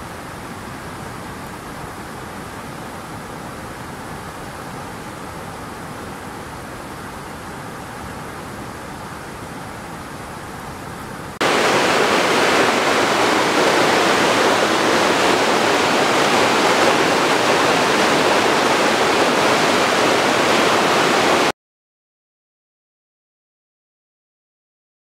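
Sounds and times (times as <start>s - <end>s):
faint wash of noise: 0.0s - 21.5s
water rushing over rocks: 8.0s - 21.5s.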